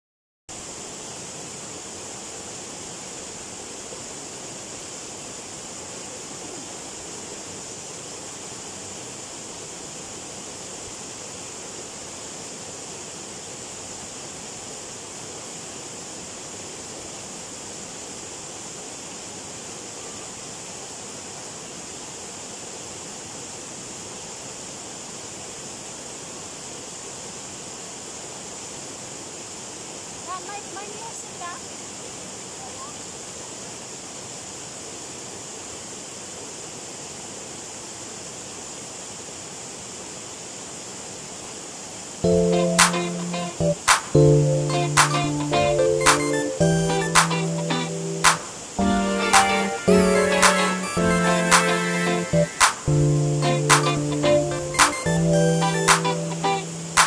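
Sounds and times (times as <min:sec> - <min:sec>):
waterfall rushing over rocks: 0:00.5 - 0:44.2, 0:47.0 - 0:53.9.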